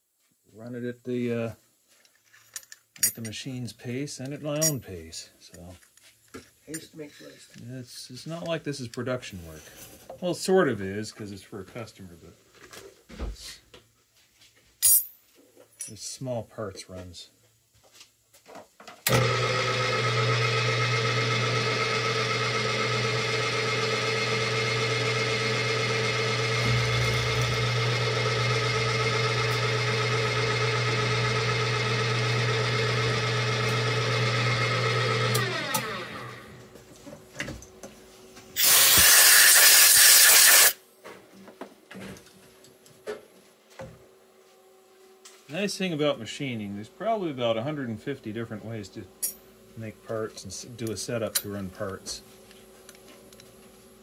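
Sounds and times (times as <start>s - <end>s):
end mill cutting metal: 19.1s - 36.6s, 38.6s - 40.8s
milling machine spindle whining: 19.1s - 36.6s
loud hiss: 38.6s - 40.8s.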